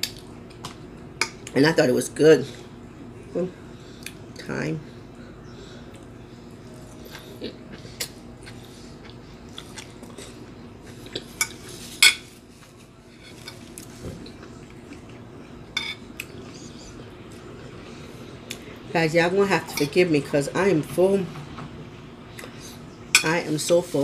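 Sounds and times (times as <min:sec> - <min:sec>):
chewing food: 0:06.9 - 0:11.8, 0:12.6 - 0:17.7.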